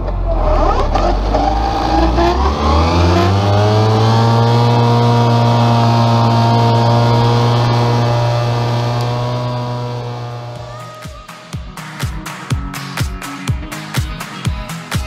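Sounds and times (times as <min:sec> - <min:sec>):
disc mower spinning up: 0:00.4 - 0:10.8.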